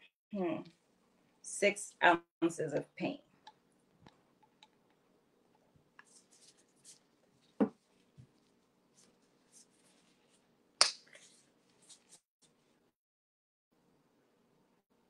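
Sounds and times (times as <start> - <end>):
soft rubbing and scraping: 6.0 - 10.5.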